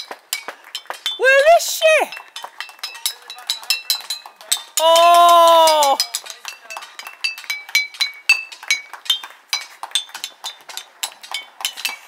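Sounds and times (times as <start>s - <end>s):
glass bottles clinking: 0.0s - 12.0s.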